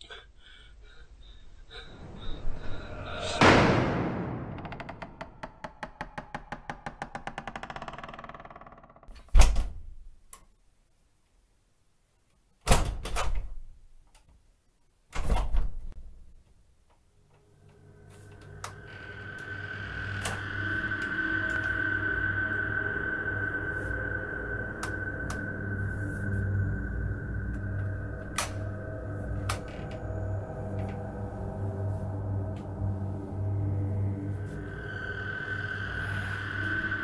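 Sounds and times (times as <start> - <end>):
low drone: 0.0 - 8.2, 17.2 - 37.0
steady high tone: 17.4 - 37.0.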